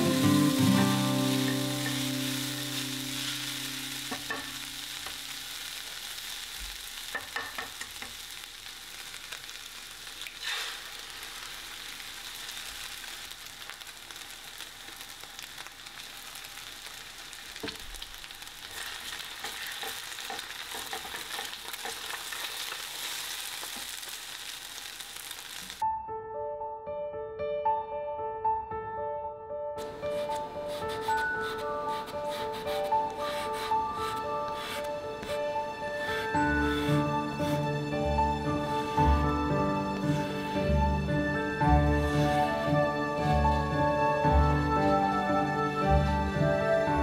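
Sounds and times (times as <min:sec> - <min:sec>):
food sizzling in a pan: 0:00.0 - 0:25.8, 0:29.8 - 0:47.0
spatula scraping a pan: 0:18.7 - 0:23.1, 0:30.1 - 0:37.8, 0:41.7 - 0:42.8.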